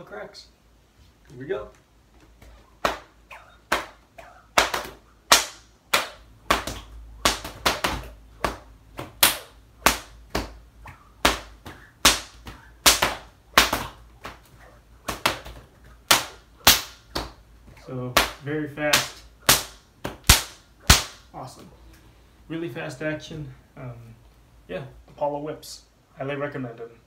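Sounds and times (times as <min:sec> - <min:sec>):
whip cracking: 0:02.8 - 0:17.4.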